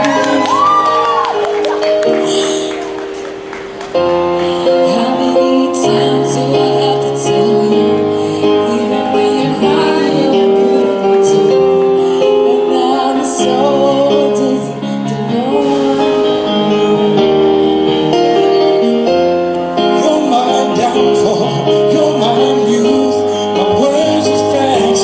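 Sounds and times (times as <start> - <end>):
woman singing into a microphone: 0.0 - 1.4, 4.5 - 17.7
instrumental backing track: 0.0 - 25.0.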